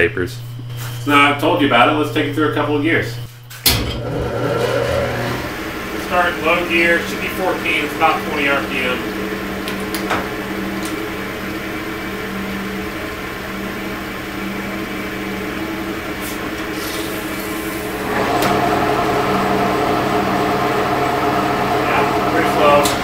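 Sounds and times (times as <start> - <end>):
lathe gear-train hum: 1.0 - 23.0.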